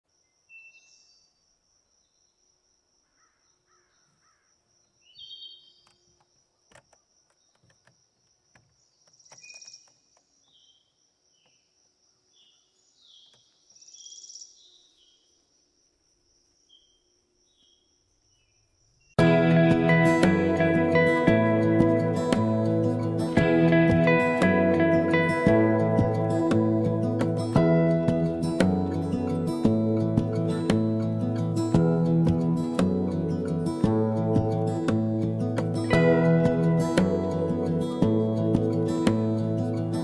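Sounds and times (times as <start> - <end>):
high insect trill: 0.1 - 35.9
short bird chirps: 5.0 - 6.0
bird calls: 8.9 - 11.6.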